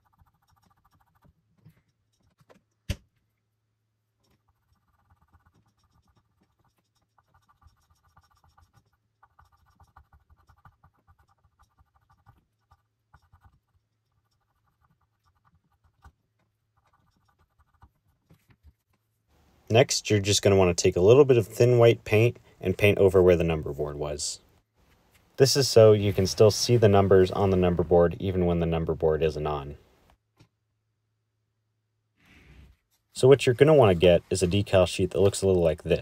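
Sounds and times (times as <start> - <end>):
cotton swab scrubbing plastic: 0.0 - 21.3.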